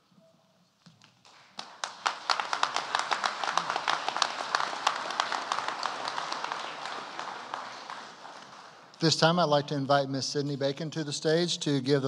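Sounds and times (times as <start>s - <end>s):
audience applauding: 1.0s - 9.6s.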